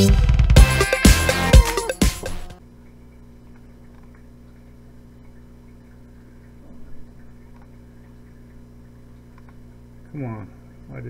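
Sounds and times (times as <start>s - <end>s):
electrical mains hum: 2.6s - 11.0s.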